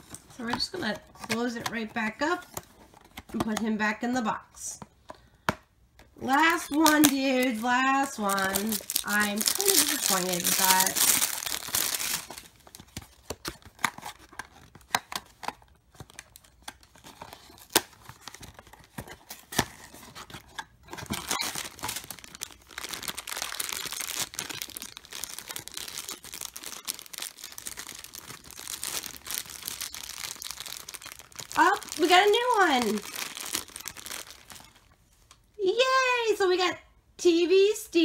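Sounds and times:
plastic bag crinkling: 6.2 - 14.9, 16.3 - 35.4.

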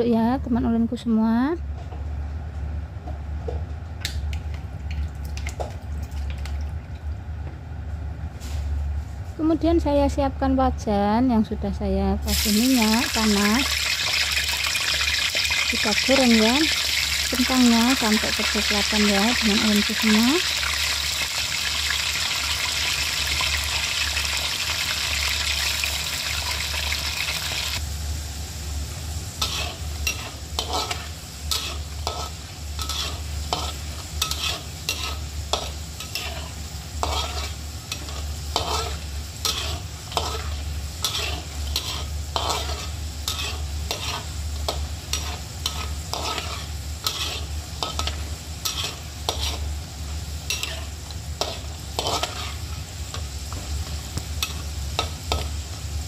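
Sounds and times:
potatoes deep-frying in oil: 12.2 - 56.0
spatula scraping a wok: 29.3 - 55.9.

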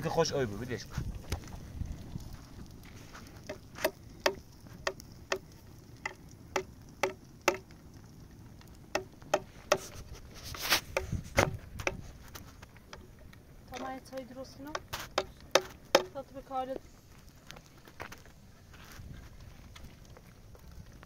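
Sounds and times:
stone knocking on ground: 3.4 - 5.4, 6.0 - 7.7, 14.7 - 16.2
stone scuffing: 9.7 - 12.5.

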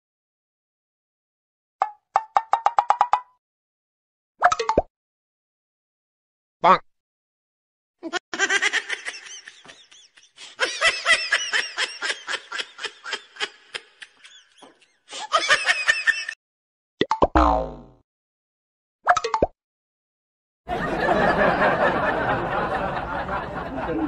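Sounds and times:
person laughing in bursts: 8.0 - 16.4.

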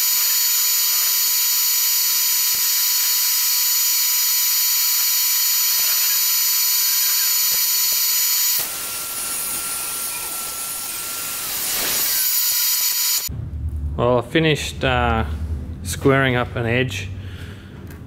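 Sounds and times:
table saw cutting wood: 0.0 - 13.3.

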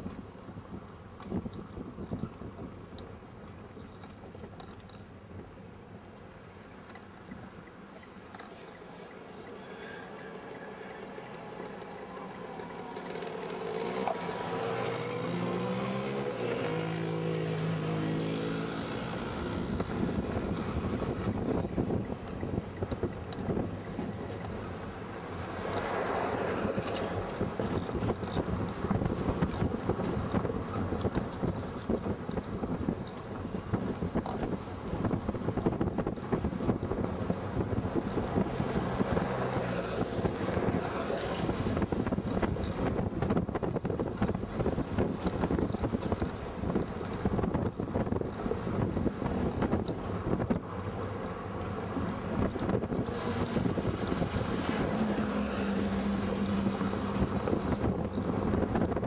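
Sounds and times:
vehicle low rumble: 0.0 - 59.0
car passing: 9.6 - 21.9, 23.9 - 31.0, 37.1 - 43.0, 50.0 - 59.0
motorcycle passing: 9.7 - 21.8, 52.7 - 59.0
wind buffeting microphone: 11.2 - 51.2, 51.8 - 59.0.

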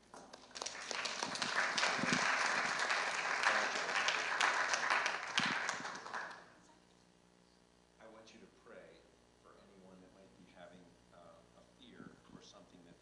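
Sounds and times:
crowd applauding: 0.2 - 6.6.

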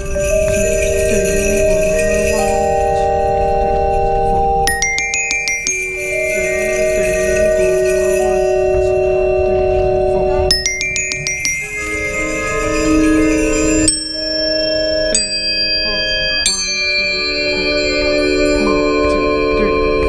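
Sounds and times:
glockenspiel and xylophone notes: 0.0 - 20.0
sustained chords: 4.4 - 20.0.

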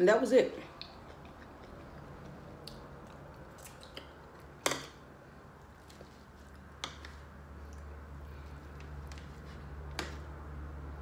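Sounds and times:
person chewing: 0.7 - 4.6.

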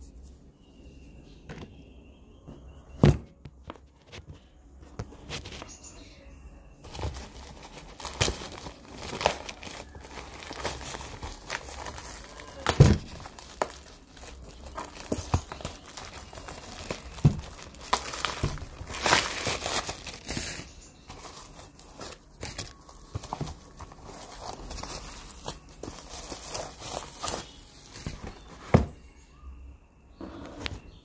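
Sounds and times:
cardboard packaging crinkling: 6.8 - 29.0.

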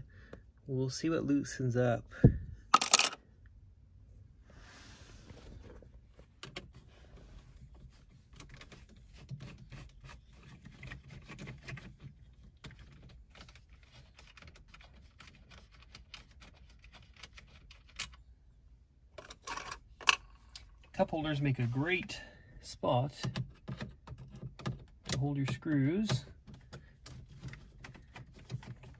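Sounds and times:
handling noise: 2.7 - 3.2.

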